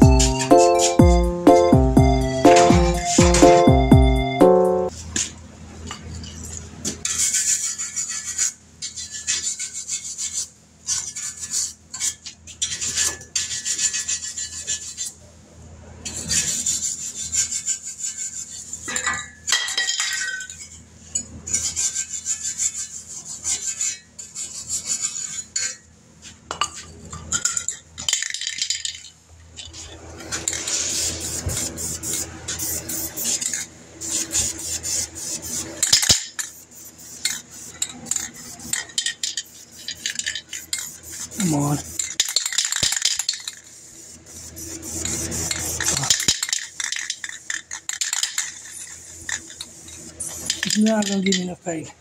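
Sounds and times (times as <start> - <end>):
metal parts clinking and scraping: 26.7 - 30.7, 37.2 - 41.0, 42.0 - 43.7, 45.0 - 51.5.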